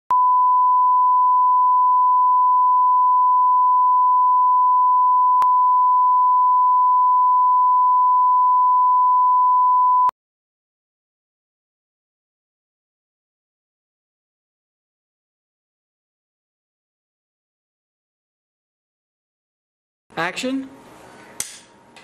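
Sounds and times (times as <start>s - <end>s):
sine test tone: 0.1s - 10.1s.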